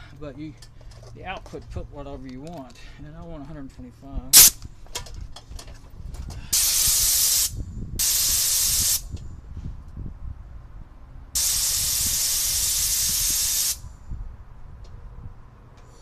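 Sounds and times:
compressed air hissing: 0:04.4 - 0:04.6, 0:06.5 - 0:09.1, 0:11.4 - 0:13.9.

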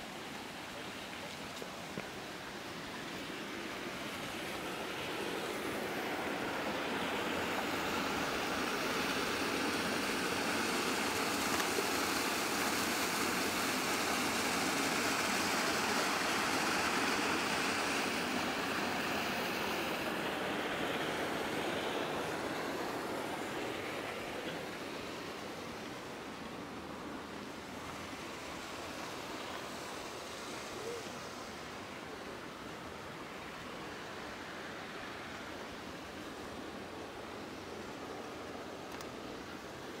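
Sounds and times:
stream water rushing: 0:00.0 - 0:40.0.

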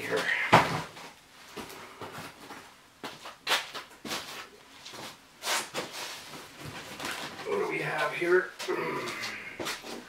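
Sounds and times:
cardboard and plastic rustling: 0:03.5 - 0:07.6.

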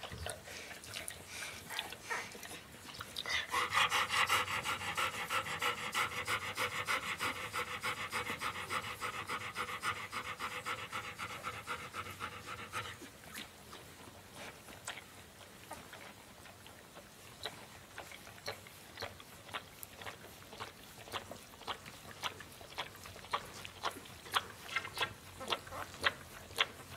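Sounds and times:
dog panting fast: 0:00.2 - 0:13.2.

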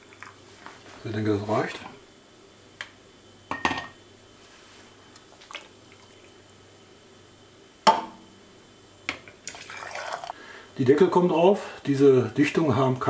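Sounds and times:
liquid pouring through funnel: 0:09.4 - 0:10.4.

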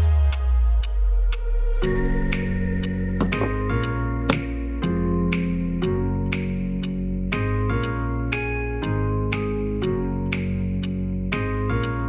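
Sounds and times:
light percussion ticks: 0:00.0 - 0:12.0
held synthesizer notes: 0:01.9 - 0:04.7.

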